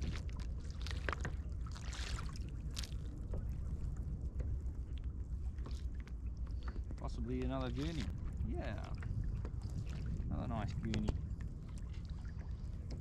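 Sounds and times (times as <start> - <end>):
water slapping against kayak hull: 0.0 - 4.6
wind rumbling on microphone: 0.0 - 13.0.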